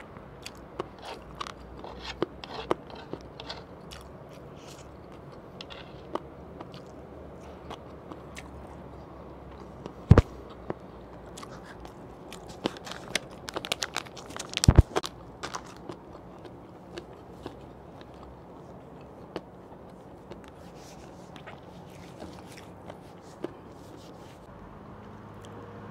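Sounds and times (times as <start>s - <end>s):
plastic packet crinkling: 12.4s - 16.0s.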